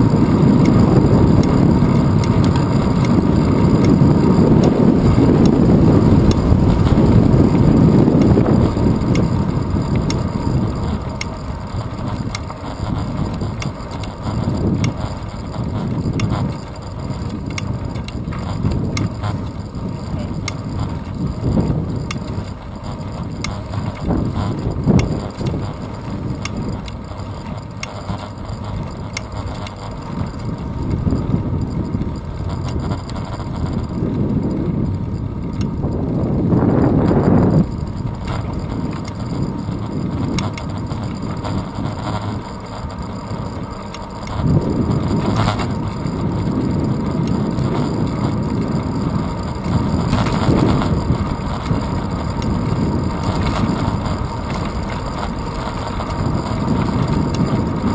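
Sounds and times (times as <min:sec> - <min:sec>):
bicycle rolling on asphalt: 0:00.0 - 0:57.9
wind buffeting microphone: 0:00.0 - 0:57.9
clicks and knocks from road: 0:06.2 - 0:35.8.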